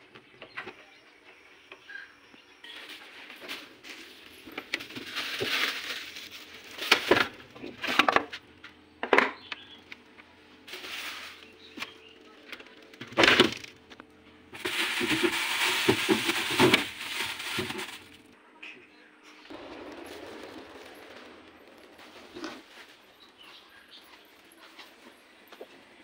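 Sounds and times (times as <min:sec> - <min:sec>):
plastic bags rustling: 0:02.7 - 0:08.3, 0:10.7 - 0:12.2, 0:14.5 - 0:18.3
refrigerator door and shelves clinking: 0:11.8 - 0:13.8.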